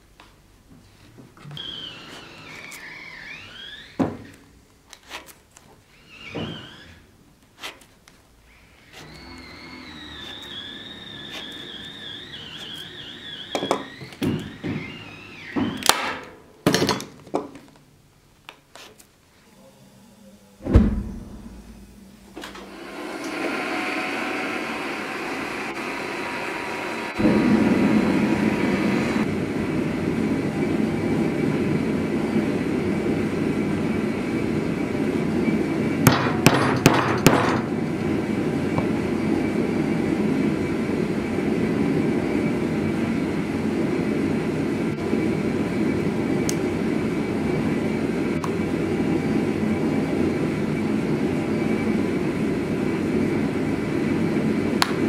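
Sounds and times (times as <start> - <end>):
gas burner roaring: 8.4 - 16.4, 19.6 - 55.0
heavy thump: 20.6 - 22.0.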